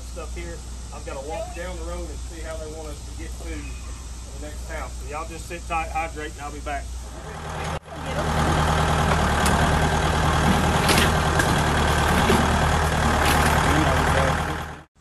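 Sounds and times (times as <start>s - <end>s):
diesel tractor engine idling: 0.0s - 15.0s
engine knocks: 7.5s - 14.8s.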